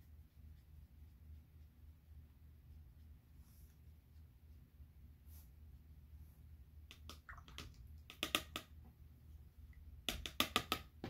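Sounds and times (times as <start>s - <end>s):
paintbrush clicks and taps: 6.9s - 8.8s, 10.0s - 11.0s.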